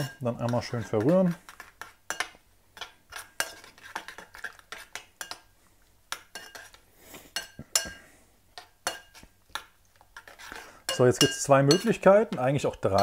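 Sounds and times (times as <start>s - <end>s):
utensil clinking against bowl: 7.4s - 9.3s, 10.9s - 13.0s.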